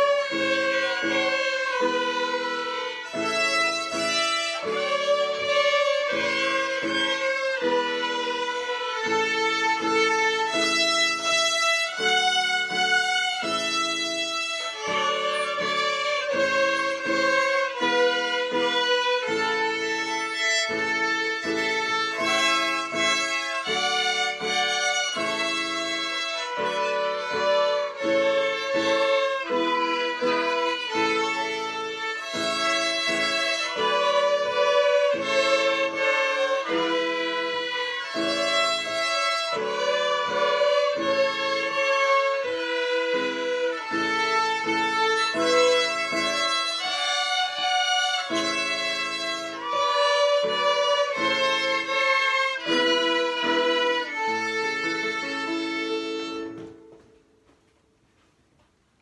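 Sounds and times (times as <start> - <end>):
violins playing in unison: 0.0 - 57.0.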